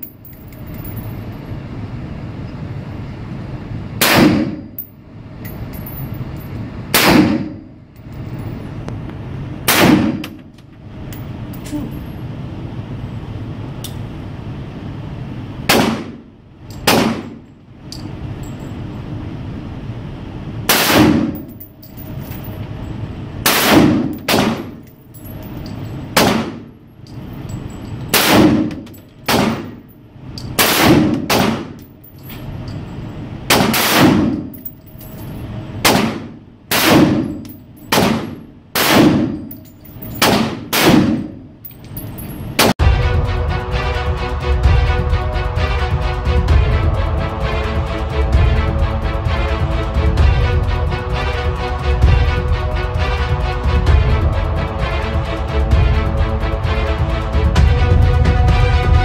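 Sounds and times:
steady low hum: 0.0 - 59.0
rifle shots indoors: 4.0 - 4.9, 6.9 - 7.8, 9.6 - 10.6, 15.6 - 17.5, 20.7 - 22.0, 23.4 - 25.0, 26.2 - 26.7, 28.1 - 32.4, 33.5 - 35.0, 35.8 - 41.4, 42.6 - 42.8.

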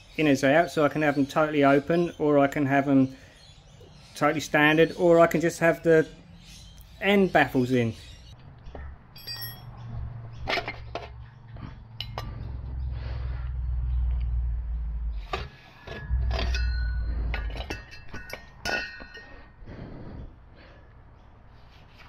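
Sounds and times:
ringing metal chinks: 9.1 - 9.9, 15.8 - 19.6
metal clinks and scrapes: 9.1 - 11.3, 12.0 - 12.6, 15.2 - 19.6.

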